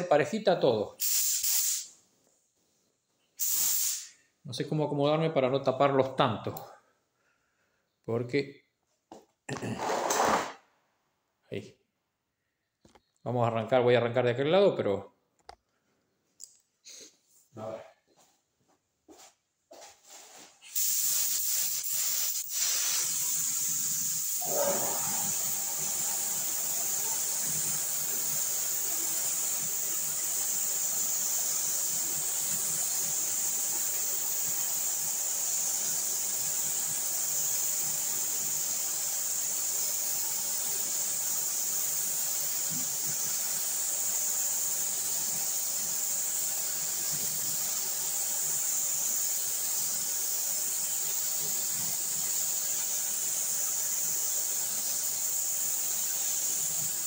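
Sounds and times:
spray gun hissing: 1.0 - 1.9, 3.4 - 4.2, 20.7 - 57.0.

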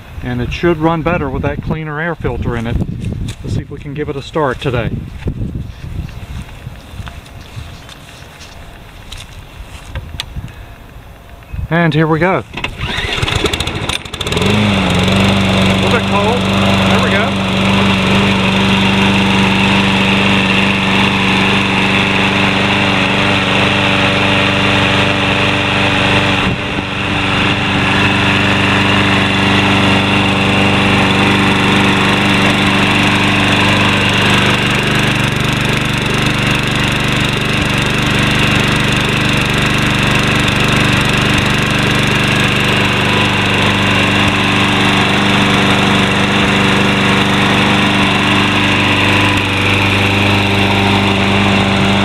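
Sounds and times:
lawn mower engine running: 12.4 - 52.0.

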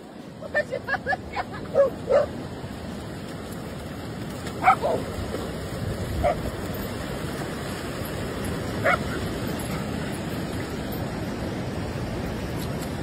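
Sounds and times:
dogs barking: 1.7 - 2.3, 4.6 - 5.0, 6.2 - 6.5, 8.8 - 9.8.

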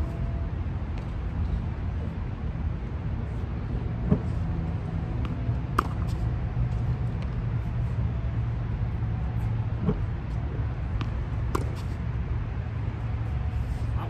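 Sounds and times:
steady low rumble: 0.0 - 14.0
tennis balls struck by racquets: 4.0 - 7.6, 9.5 - 12.3.

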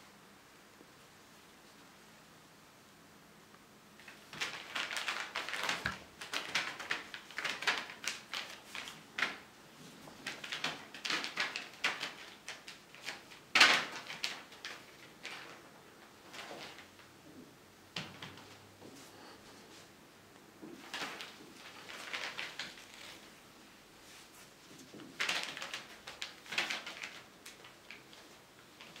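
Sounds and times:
plastic sheeting crinkling: 4.0 - 17.1, 20.8 - 29.0.

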